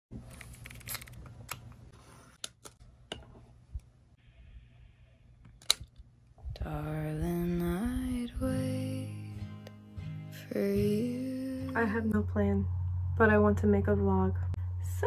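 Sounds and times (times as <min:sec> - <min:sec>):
song with sung melody: 0:06.6 - 0:12.1.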